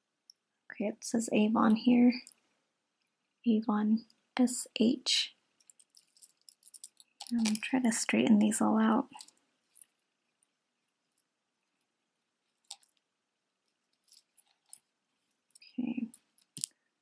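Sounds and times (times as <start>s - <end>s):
metal chain clicking: 5.6s - 7.6s, 13.9s - 14.8s.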